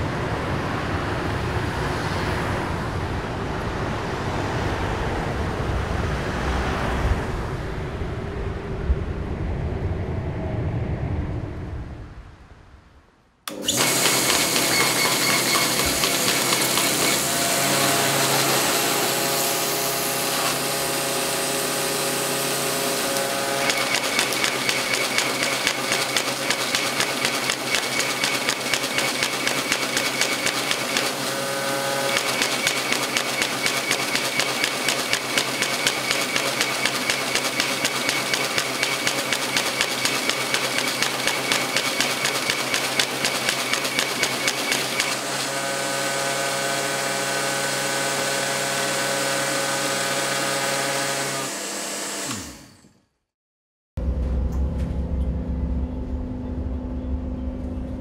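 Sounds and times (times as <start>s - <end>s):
compressor rushing noise: 13.5s - 51.2s
feed motor whine: 13.5s - 53.0s
paper sheets clattering: 13.9s - 17.3s.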